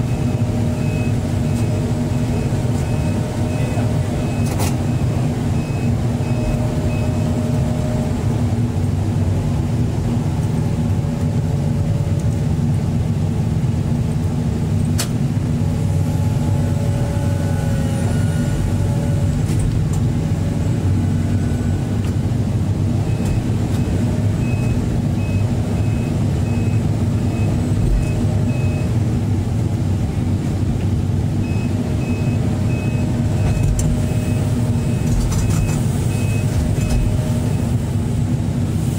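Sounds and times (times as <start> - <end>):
warning beeper short beeps: 0.0 - 7.4
diesel engine running under load: 0.0 - 38.9.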